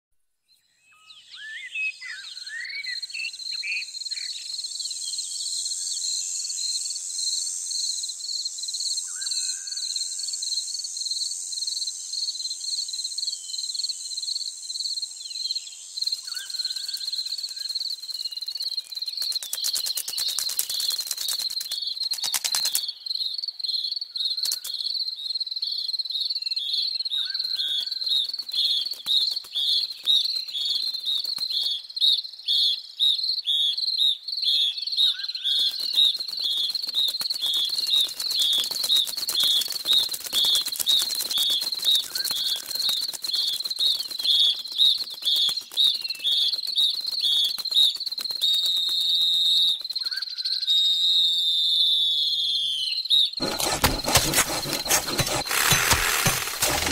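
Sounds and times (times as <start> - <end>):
cricket chirping: 2.4 - 22.8.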